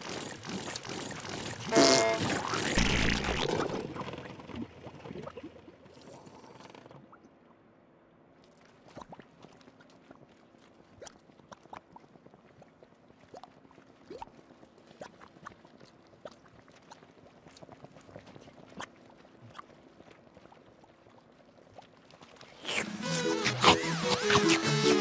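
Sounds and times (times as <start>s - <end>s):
music: 22.8s - 25.0s.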